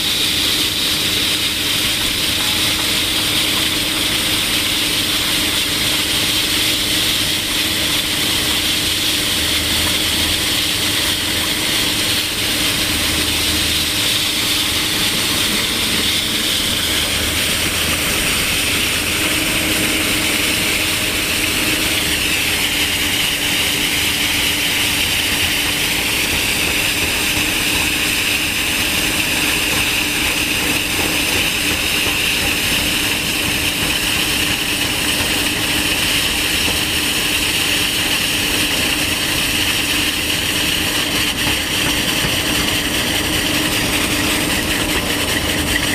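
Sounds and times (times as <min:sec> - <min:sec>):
excavator engine and hydraulics: 0:00.0 - 0:45.9
rock saw grinding whine: 0:00.0 - 0:45.9.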